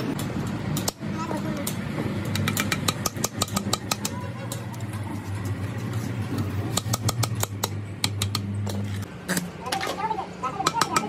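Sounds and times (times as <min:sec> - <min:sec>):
hammer tapping on metal: 0:02.2 - 0:04.2, 0:06.7 - 0:08.8, 0:10.6 - 0:11.0.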